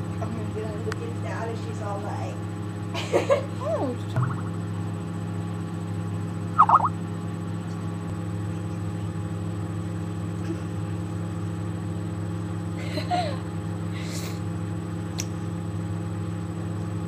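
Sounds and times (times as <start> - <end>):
low electrical hum: 0.0 - 17.0
thin high whine: 6.6 - 7.0.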